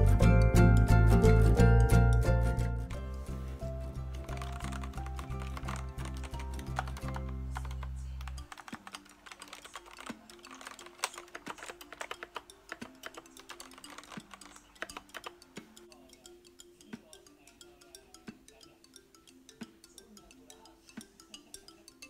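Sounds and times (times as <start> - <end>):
mechanical keyboard typing: 4.1 - 15.4.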